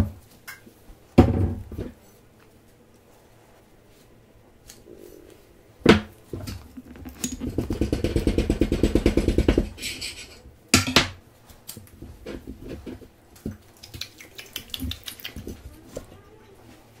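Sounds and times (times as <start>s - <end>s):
crepe squishing and clicking: 6.5s - 7.6s, 13.4s - 15.7s.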